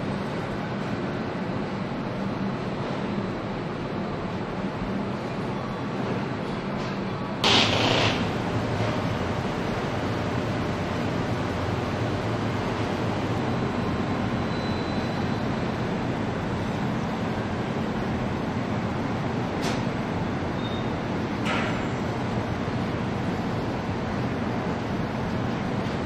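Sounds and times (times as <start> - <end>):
machinery hum: 0.0 - 26.0
short loud hiss: 7.4 - 8.3.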